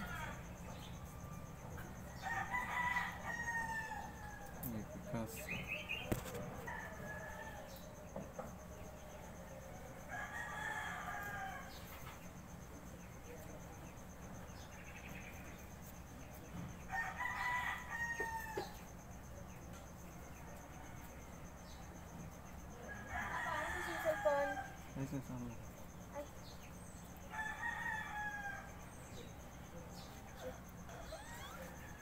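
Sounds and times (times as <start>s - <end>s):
rooster crowing: 0.0s - 4.6s, 6.5s - 8.0s, 10.1s - 11.8s, 16.9s - 18.8s, 22.9s - 24.8s, 27.3s - 28.9s, 30.4s - 32.0s.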